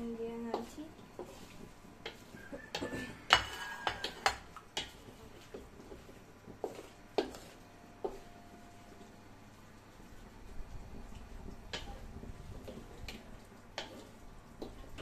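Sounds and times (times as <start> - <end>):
dishes and utensils clinking: 2.1 - 4.9.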